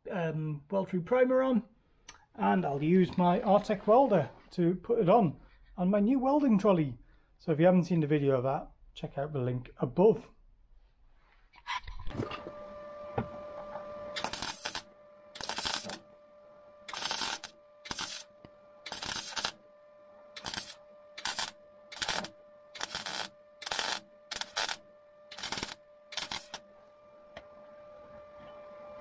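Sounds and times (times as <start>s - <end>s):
steady hum: 12.0s - 29.0s
crackling welding arc: 14.2s - 16.1s, 16.8s - 19.6s, 20.4s - 26.6s.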